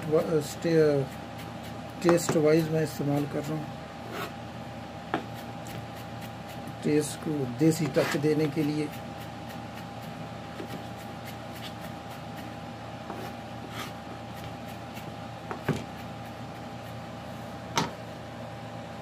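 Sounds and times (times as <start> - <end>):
knife chopping on wooden board: 1.0 - 3.4, 5.1 - 6.8, 7.8 - 16.9.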